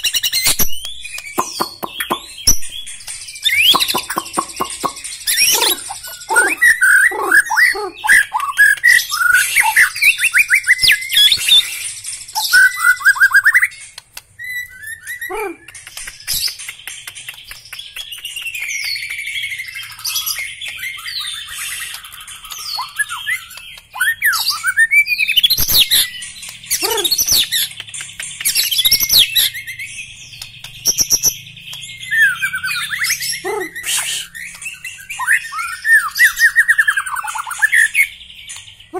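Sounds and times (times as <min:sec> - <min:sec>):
bird singing trills and whistles: 0:00.0 - 0:38.9.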